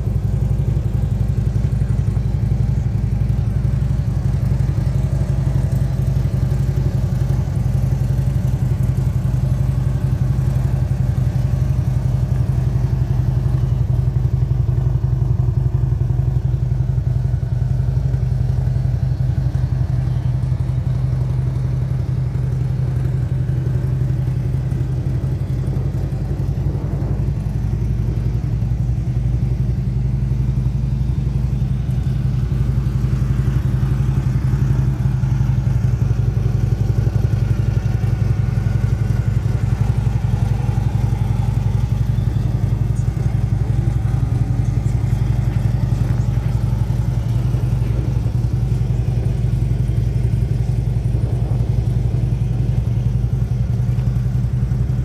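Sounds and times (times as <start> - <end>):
motorcycle engine idling: 0.0 - 55.0.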